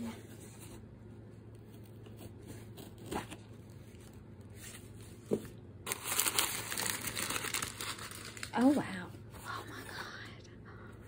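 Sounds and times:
packing paper crinkling: 5.8 - 9.0.

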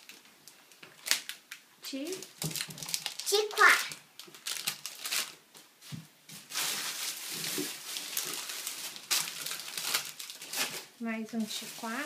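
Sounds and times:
plastic bag rustling: 2.1 - 12.0.

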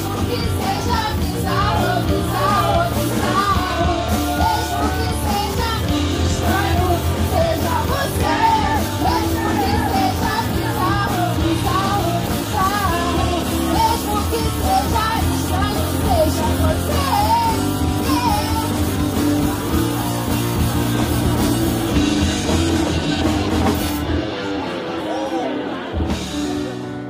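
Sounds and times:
woman singing: 0.0 - 19.0
drum kit with cymbals: 0.0 - 25.1
electric bass: 0.0 - 27.0.

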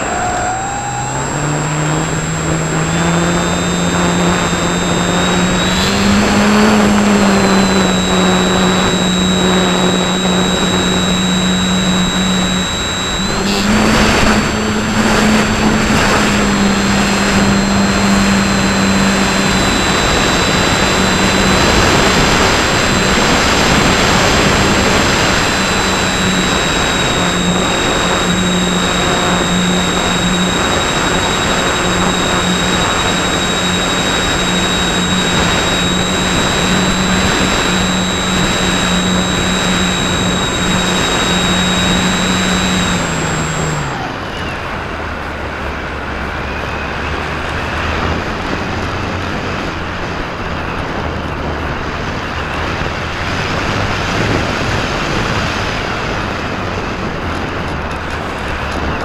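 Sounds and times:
rushing airflow: 0.0 - 44.0
electric motor and propeller hum: 0.0 - 59.0.

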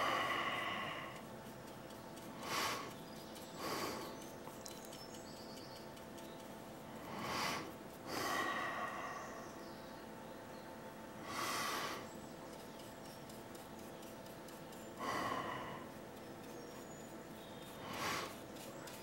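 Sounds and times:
person breathing softly: 0.0 - 1.3, 2.4 - 3.0, 3.6 - 4.2, 6.9 - 9.6, 11.2 - 12.1, 15.0 - 16.0
faint steady hum: 0.0 - 19.0.

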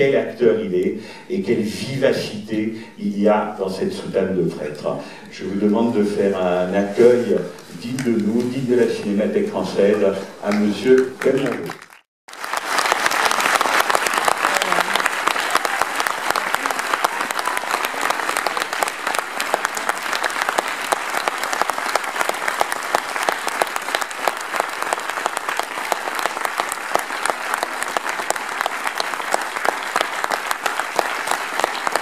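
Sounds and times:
audience applauding: 10.0 - 32.0.

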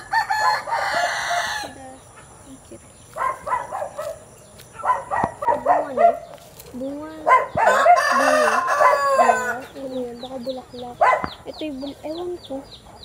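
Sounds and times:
rooster crowing: 0.0 - 1.8, 7.6 - 9.7
chickens clucking: 0.0 - 13.0.

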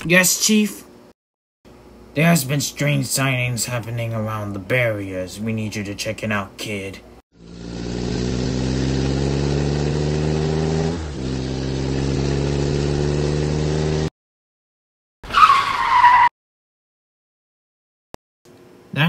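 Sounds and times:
vehicle engine accelerating: 7.4 - 14.1
tyres screeching skid: 15.2 - 16.3.

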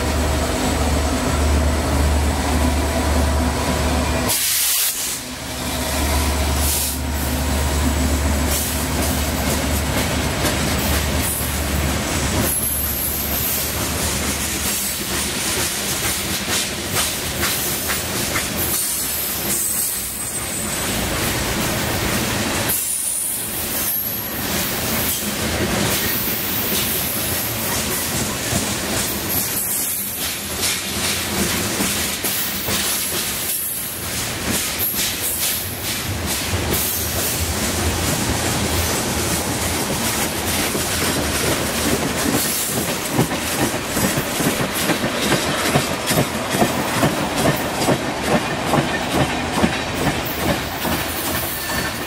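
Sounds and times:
train wheels rolling on rail: 0.0 - 52.0
wheels clacking over rail joints: 24.5 - 52.0.

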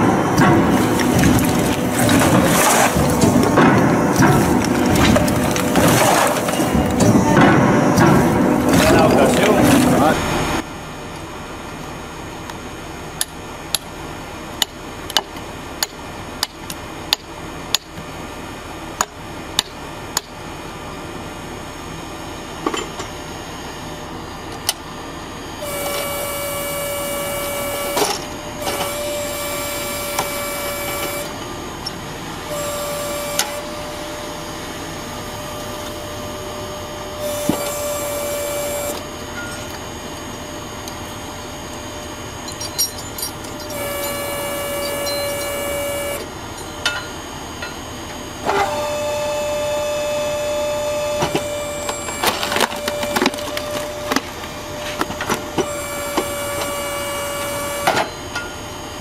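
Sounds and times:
log splitter humming: 0.0 - 10.6, 25.6 - 42.4, 43.3 - 46.5, 51.2 - 58.1.

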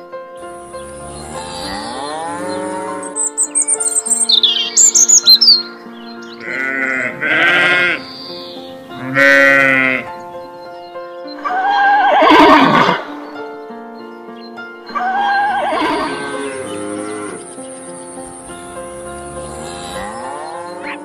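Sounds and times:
background music with held notes: 0.0 - 21.0
bird chirping: 0.4 - 9.0, 13.0 - 21.0
sheep bleating: 0.5 - 4.8, 6.3 - 10.1, 14.9 - 17.5, 18.2 - 21.0
horse whinnying: 11.4 - 13.1, 15.0 - 17.4.

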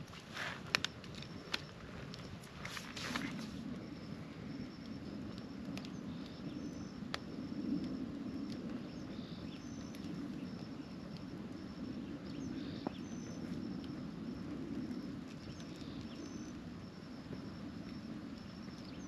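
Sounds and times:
campfire burning: 0.0 - 19.0
fire popping: 0.0 - 19.0.

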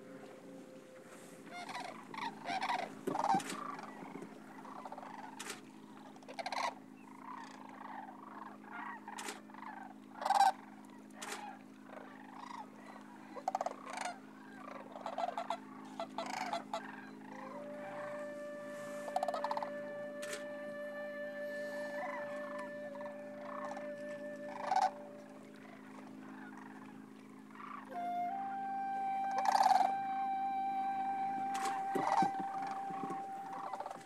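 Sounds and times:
cranes calling: 0.0 - 34.0
steady low hum: 0.0 - 34.0
held tone: 17.5 - 25.6, 27.9 - 34.0.

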